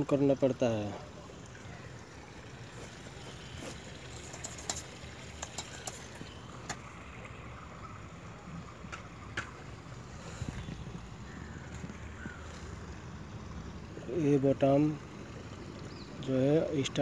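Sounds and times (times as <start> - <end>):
low background rumble: 1.0 - 16.9
sharp clicks: 4.3 - 6.8.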